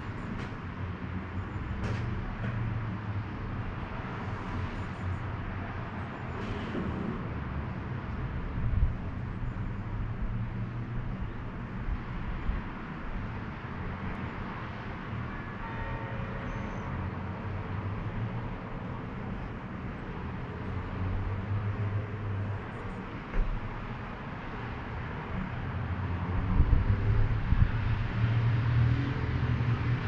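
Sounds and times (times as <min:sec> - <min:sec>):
distant traffic hum: 0:00.0 - 0:30.0.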